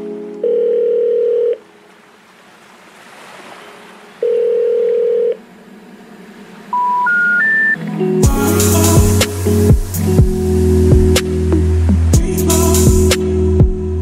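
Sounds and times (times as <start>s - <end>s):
electronic beeps: 6.7s - 7.8s.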